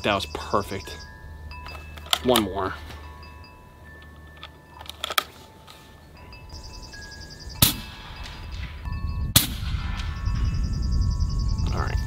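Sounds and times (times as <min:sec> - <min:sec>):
faint wind chimes: 0:00.0 - 0:12.0
air rifle shots: 0:07.6 - 0:10.2.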